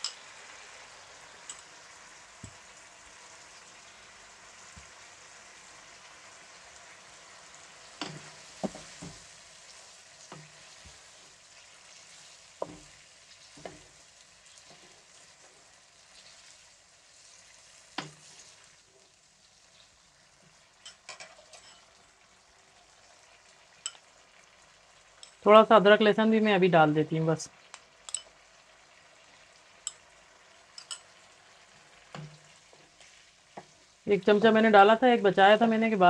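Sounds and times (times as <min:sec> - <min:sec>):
chicken sizzling in oil: 0:00.0 - 0:36.0
spatula scraping pan: 0:11.8 - 0:16.6.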